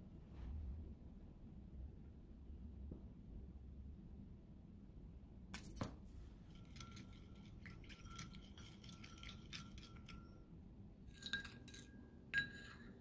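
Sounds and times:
spoon scraping ceramic bowl: 6.4s - 10.4s, 11.1s - 13.0s
spoon clinking on ceramic: 6.5s - 10.4s, 11.1s - 13.0s.

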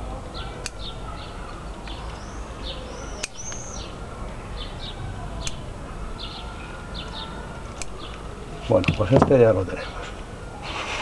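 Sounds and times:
small birds chirping: 0.0s - 11.0s
scissors snipping: 3.2s - 3.6s.

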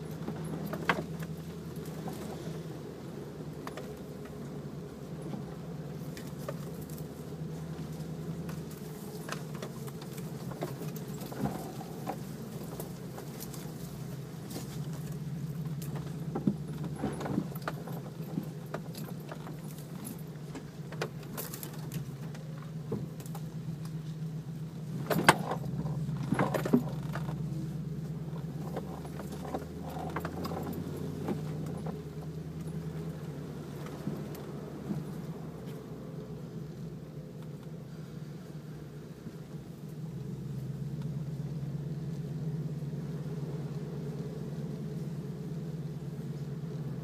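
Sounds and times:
off-road vehicle engine running: 0.0s - 47.0s
suspension clunking: 0.0s - 47.0s
loose things rattling: 5.2s - 35.8s.

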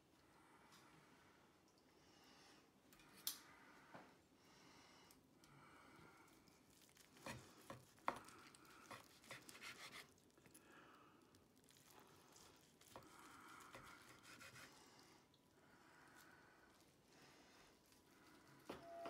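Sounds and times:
knife slicing meat on board: 7.2s - 10.1s.

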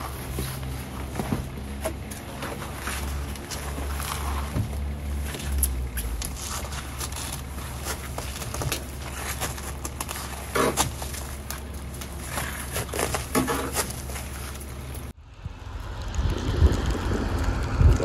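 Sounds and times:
boots crunching snow on ladder: 0.0s - 15.1s
steady low rumble: 0.0s - 18.0s.

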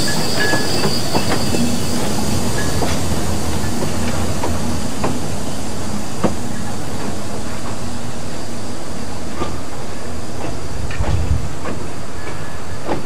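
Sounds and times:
steam train rumbling past: 0.0s - 13.0s
wheels clicking over rail joints: 9.3s - 13.0s.

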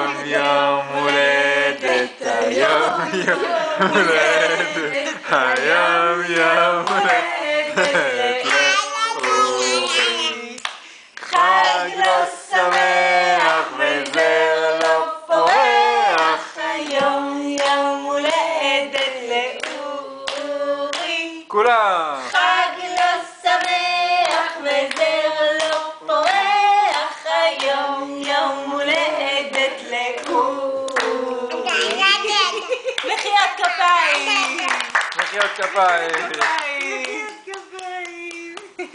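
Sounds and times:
people singing a celebration song: 0.0s - 38.9s
people clapping in time: 4.0s - 12.8s, 33.0s - 38.9s.

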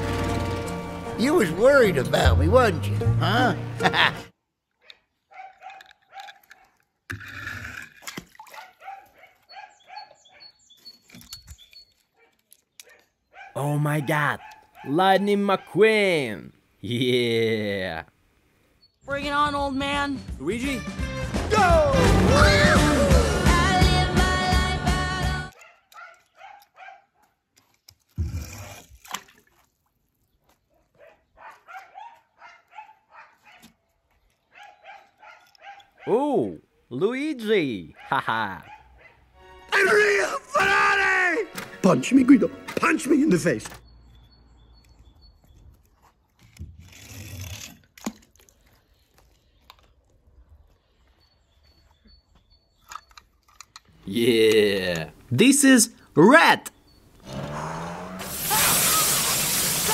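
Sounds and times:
toy car splashing into water: 58.2s - 59.9s.

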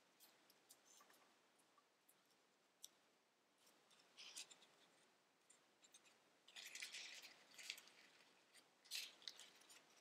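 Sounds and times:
paper crinkling and clicking: 5.8s - 10.0s.

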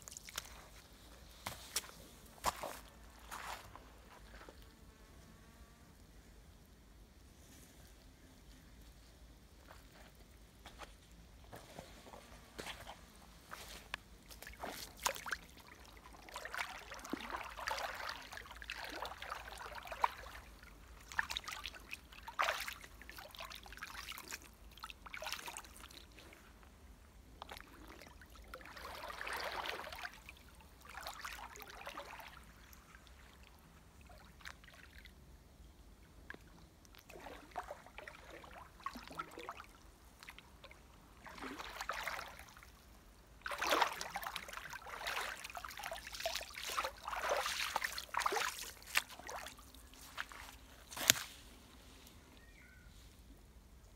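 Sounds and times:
water splashing as person wades: 13.5s - 26.3s, 27.4s - 35.1s, 36.9s - 51.4s.

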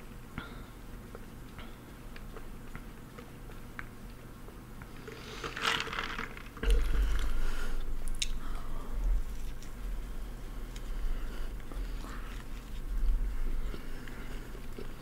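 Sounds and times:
chewing: 1.0s - 5.2s, 9.2s - 15.0s.

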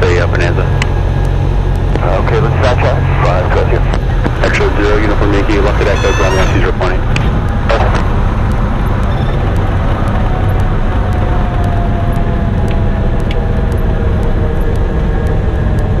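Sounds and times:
propeller plane engine drone: 0.0s - 16.0s
faint tone sliding down in pitch: 5.8s - 6.9s.

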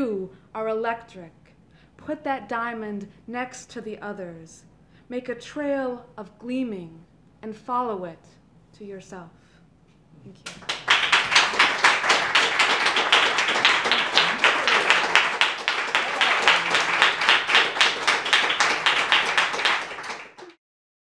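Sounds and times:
small audience applauding: 10.4s - 20.6s.

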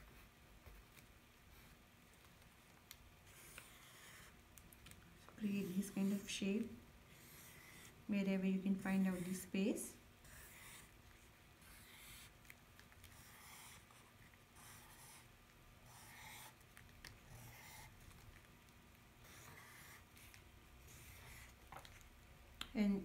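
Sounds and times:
pen scratching on paper: 3.2s - 4.4s, 5.4s - 11.0s, 11.6s - 12.4s, 13.0s - 18.3s, 19.2s - 21.6s.

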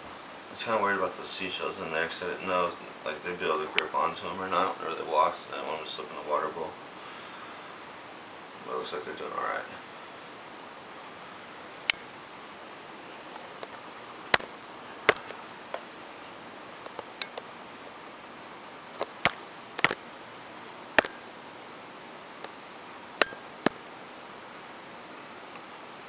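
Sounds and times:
steady background hiss: 0.0s - 26.0s.

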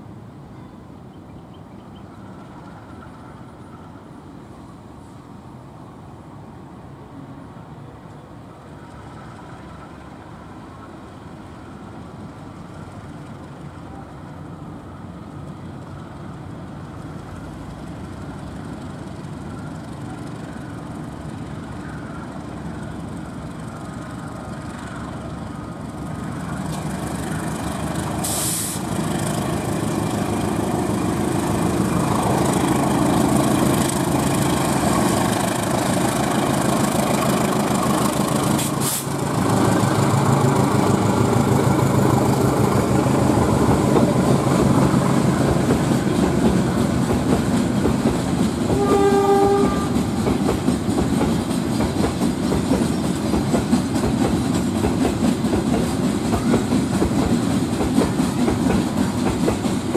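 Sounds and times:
diesel locomotive engine running: 1.8s - 59.9s
brief hiss: 28.1s - 29.0s, 38.5s - 39.2s.

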